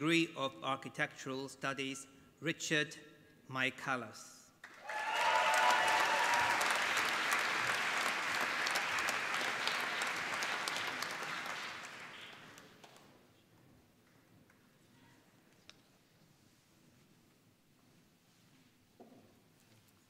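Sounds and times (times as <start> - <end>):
audience applauding: 4.6 - 12.8.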